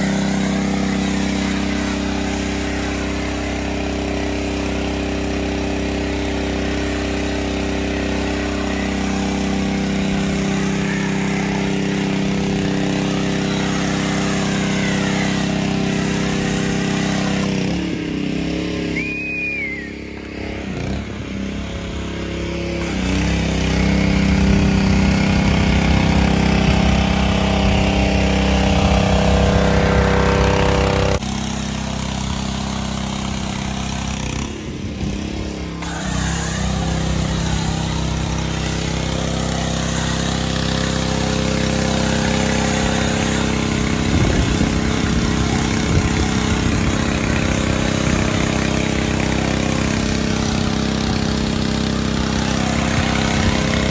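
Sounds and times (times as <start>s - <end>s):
foam cannon spraying hiss: 0.0s - 18.2s, 35.7s - 53.9s
small engine running: 0.0s - 53.9s.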